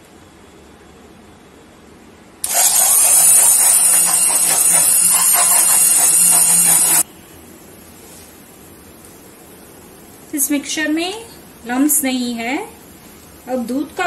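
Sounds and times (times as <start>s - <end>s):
hand blender motor in liquid: 2.4s - 7.0s.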